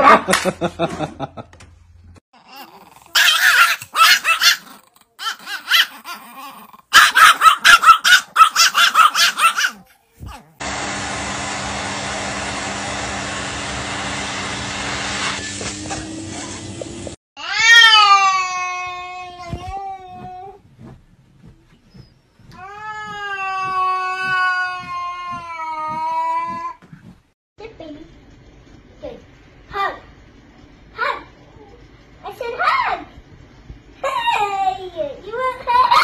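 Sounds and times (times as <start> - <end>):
small dogs barking and yipping: 2.4 - 10.6, 35.6 - 36.0
vacuum cleaner running: 10.6 - 17.2
cat yowling: 17.4 - 19.4, 22.6 - 26.6.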